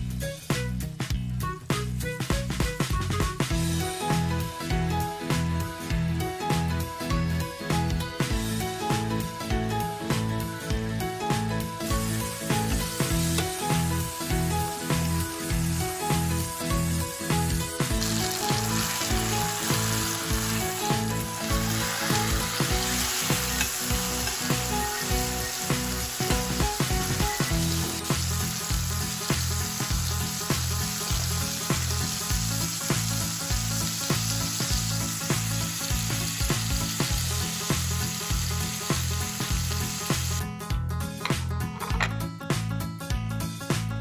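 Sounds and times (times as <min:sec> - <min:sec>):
background music: 0:00.0 - 0:44.0
steak sizzling in oil: 0:11.8 - 0:40.4.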